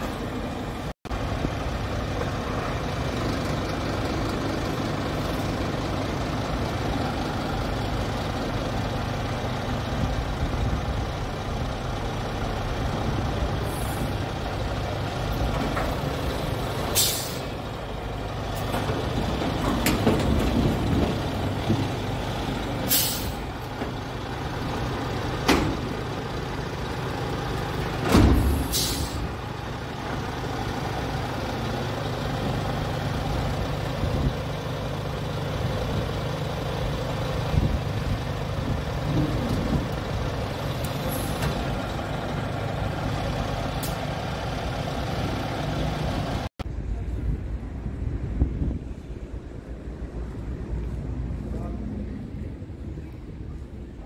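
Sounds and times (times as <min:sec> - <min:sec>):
truck diesel engine running: 0:00.0 - 0:54.0
sharp air hisses: 0:16.9 - 0:17.5, 0:22.9 - 0:23.4, 0:28.4 - 0:29.3.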